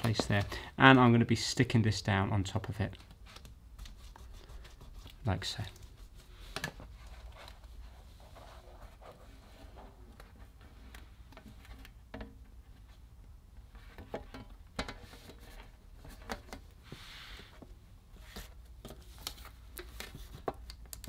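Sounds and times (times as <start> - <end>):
hands rustling laptop cable: 2.9 - 13.0.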